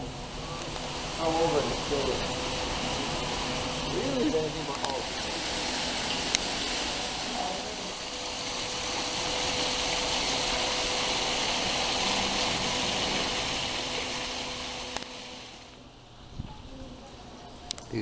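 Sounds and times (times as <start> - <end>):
water splashing down rocks: 4.5 - 15.6.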